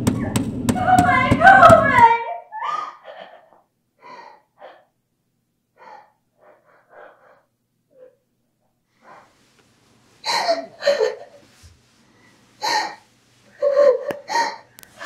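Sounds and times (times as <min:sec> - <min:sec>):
woman gasping for breath: 0:05.8 - 0:07.5.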